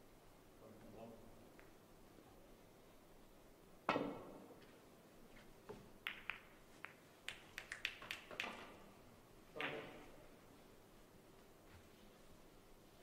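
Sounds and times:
snooker balls clicking: 5.7s - 8.9s, 9.5s - 10.2s.

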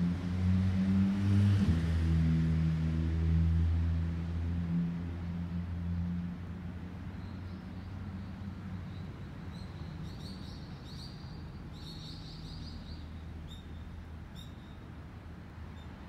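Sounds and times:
small bird chirping: 8.9s - 14.8s.

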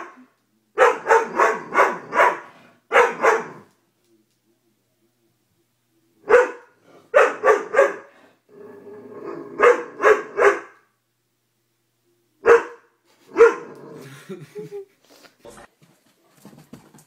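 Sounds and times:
dog barking: 0.8s - 3.7s, 6.2s - 8.1s, 9.6s - 10.8s, 12.4s - 13.7s
dog growling: 8.5s - 10.0s, 13.6s - 14.2s.

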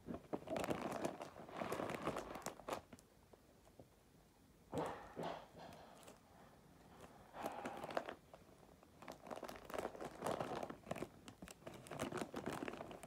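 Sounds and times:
wrapping paper crinkling: 0.1s - 3.0s, 7.0s - 13.0s.

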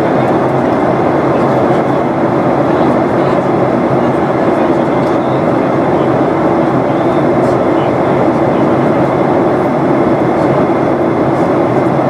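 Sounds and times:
airplane cabin engine drone: 0.0s - 12.0s
rushing airflow: 0.0s - 12.0s.

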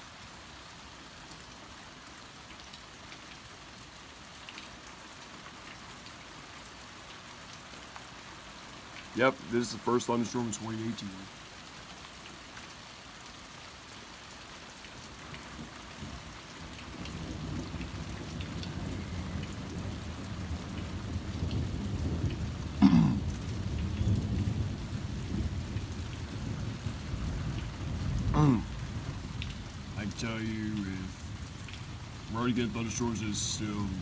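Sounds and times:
rain falling: 0.0s - 34.0s
person's voice: 9.2s - 11.3s, 28.4s - 28.7s, 30.0s - 31.2s, 32.3s - 34.0s
thunder rumbling: 15.6s - 34.0s.

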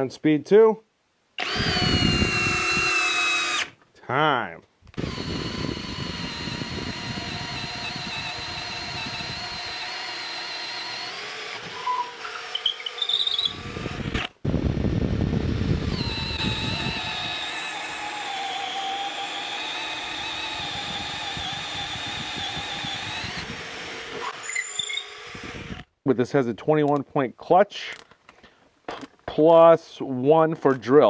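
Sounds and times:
drill bit grinding wood: 1.4s - 3.8s, 4.9s - 25.9s
drill motor whine: 1.4s - 3.8s, 5.0s - 25.9s.

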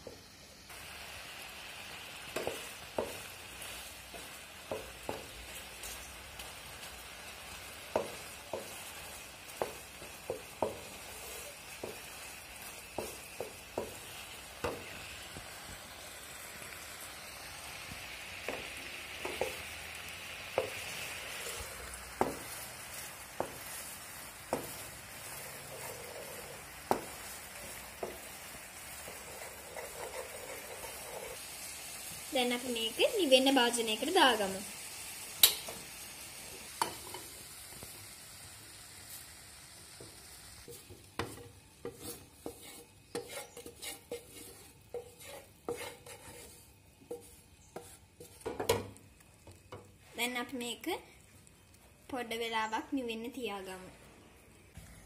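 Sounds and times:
syrup sizzling in frying pan: 0.0s - 55.0s
wooden spoon tapping and scraping pan: 2.2s - 15.9s, 17.8s - 31.4s, 36.8s - 37.3s, 40.0s - 50.0s.

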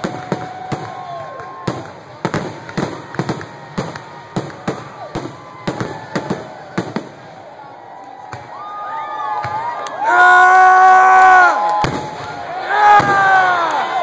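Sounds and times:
fireworks whistling: 0.0s - 7.3s, 13.0s - 13.5s
fireworks bursting: 0.0s - 8.7s, 11.6s - 14.0s.

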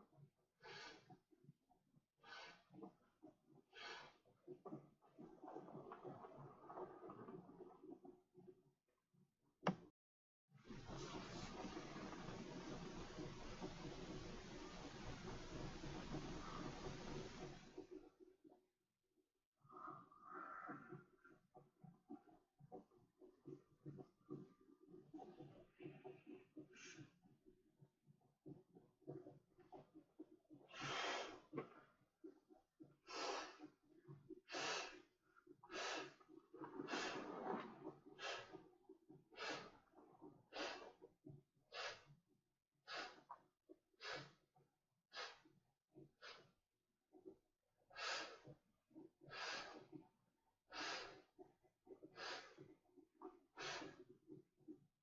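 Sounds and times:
soft ticks and rustles: 0.0s - 8.7s, 10.6s - 18.6s, 19.7s - 42.2s
soft low sounds at valve: 10.7s - 18.1s.

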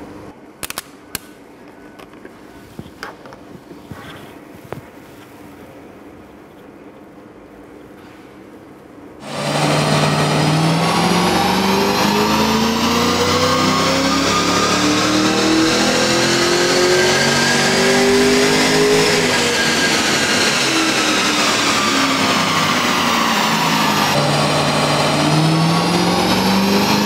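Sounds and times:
car engine revving at full throttle: 9.2s - 27.0s.

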